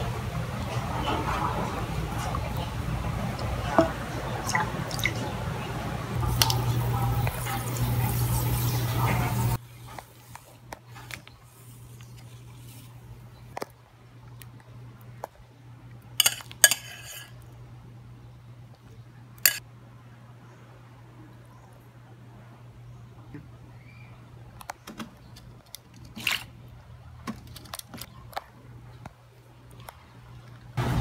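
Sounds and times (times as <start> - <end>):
kitchen things clattering: 16.2 - 17.4.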